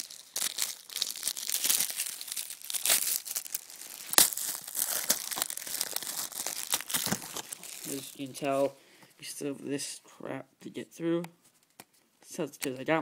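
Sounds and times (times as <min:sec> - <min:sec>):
plastic wrap crinkling and tearing: 0:00.0 - 0:08.7.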